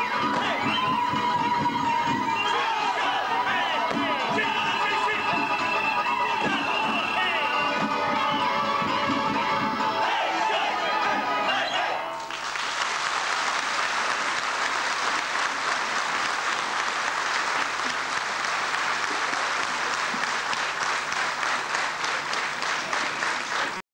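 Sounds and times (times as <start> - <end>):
dance music: 0.0 - 12.2
audience applause: 12.2 - 23.8.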